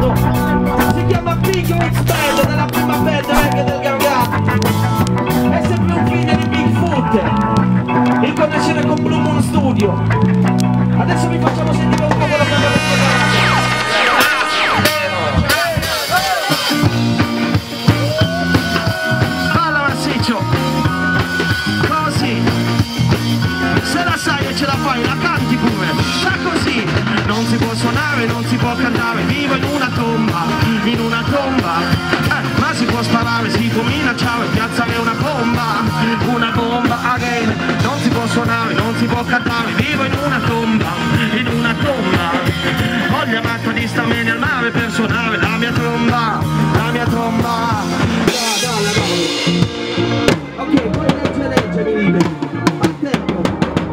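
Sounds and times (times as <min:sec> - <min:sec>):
reggae band music: 0:00.0 - 0:53.9
person singing: 0:11.0 - 0:16.9.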